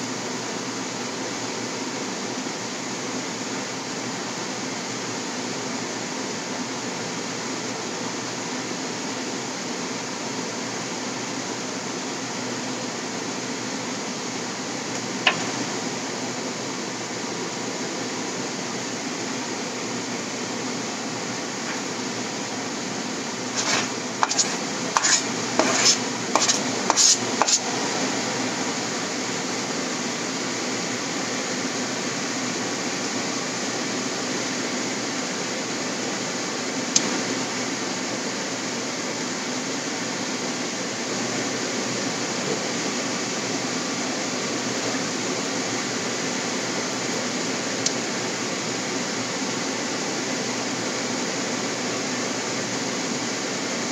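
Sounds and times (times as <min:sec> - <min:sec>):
steady hiss: 0:17.8 - 0:34.0.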